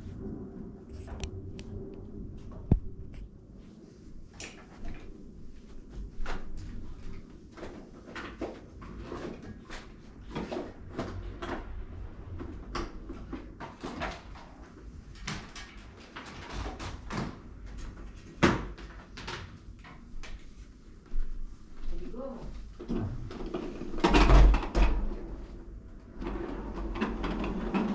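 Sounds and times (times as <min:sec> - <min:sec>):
objects knocking and clattering: 0:22.8 - 0:25.2, 0:26.2 - 0:27.9.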